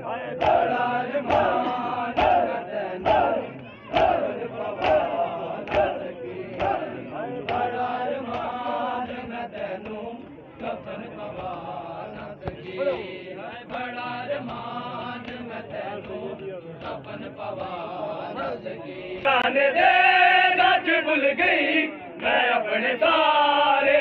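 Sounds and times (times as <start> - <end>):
men chanting a lament: 0.0 - 24.0.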